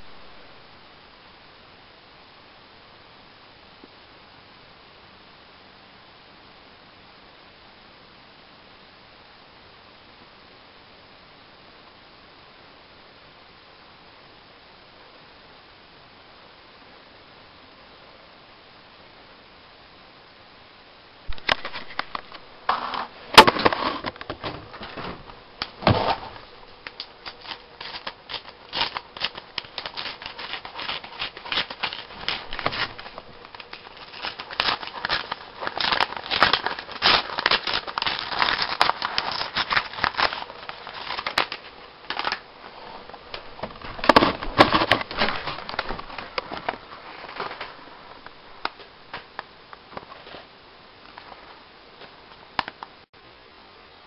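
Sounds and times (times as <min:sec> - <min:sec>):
paper rustling and crumpling: 0:21.3 - 0:47.8.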